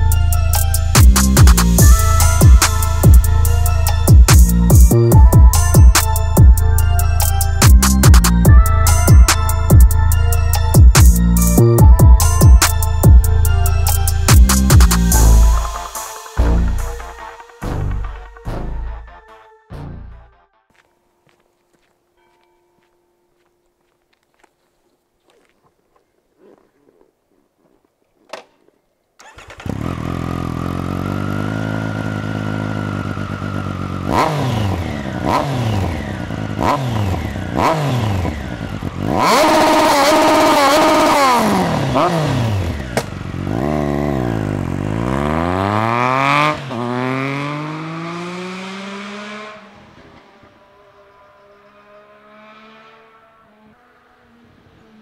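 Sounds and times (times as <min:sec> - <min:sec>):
motorcycle engine starting and idling: 0:28.3 - 0:55.0
motorcycle accelerating away: 0:29.2 - 0:55.0
motorcycle engine revving: 0:29.2 - 0:55.0.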